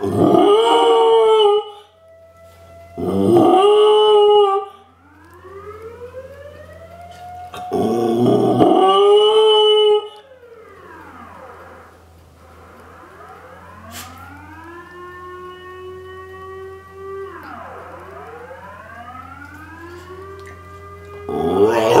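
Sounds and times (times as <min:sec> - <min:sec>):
dog howling: 0:00.0 - 0:01.9, 0:03.0 - 0:04.8, 0:07.5 - 0:10.2, 0:21.0 - 0:22.0
air-raid siren rising and falling: 0:00.0 - 0:22.0.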